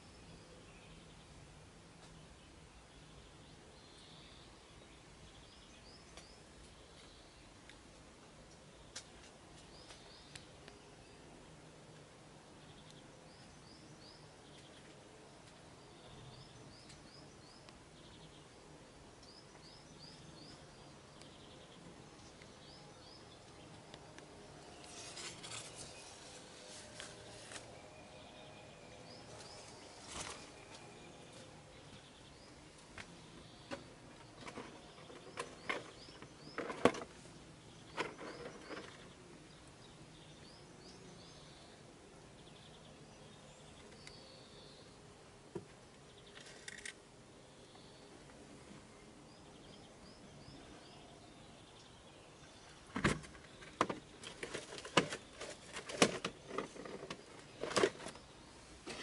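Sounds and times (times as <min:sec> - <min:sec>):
clicks and rustles: 0:52.9 - 0:59.0.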